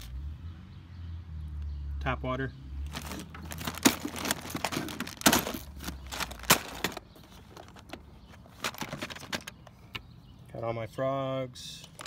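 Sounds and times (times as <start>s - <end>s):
plastic rustling: 2.9s - 9.6s
plastic boxes clicking and knocking: 2.9s - 9.7s.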